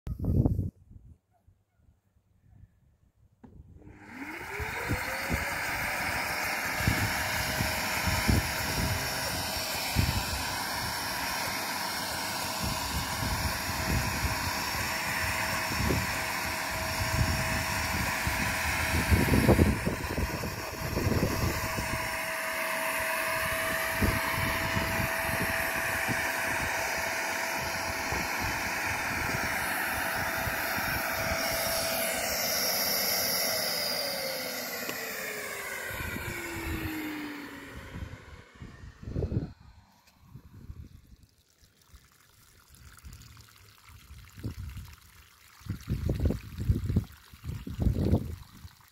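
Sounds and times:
pond vacuum motor whining: 3.4s - 48.9s
water gurgling through hose: 4.1s - 31.8s, 40.3s - 48.9s.

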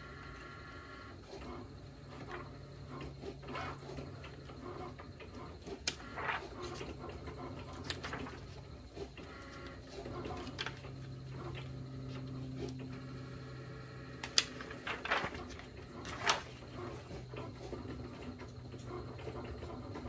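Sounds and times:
steady low hum: 0.0s - 20.0s
plastic sheet rustling: 14.2s - 17.0s
plastic crinkles: 14.3s - 16.6s.

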